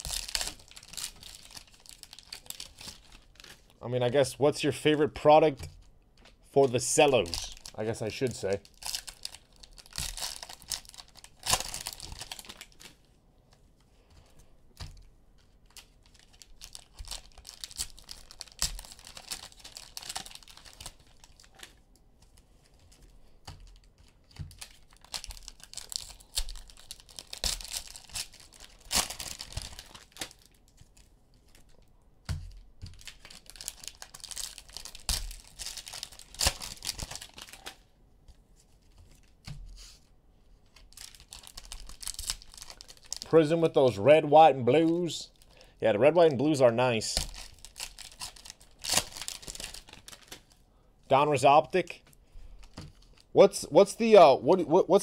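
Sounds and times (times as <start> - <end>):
cellophane wrappers tearing and crinkling: 0.0 - 3.8, 6.6 - 13.1, 14.8 - 31.9, 32.5 - 37.9, 40.6 - 43.8, 47.0 - 50.6, 52.6 - 53.3.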